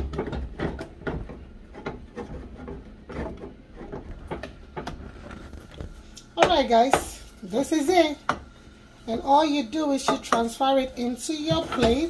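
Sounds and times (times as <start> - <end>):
wooden spatula scraping a pot: 0.0 - 6.1.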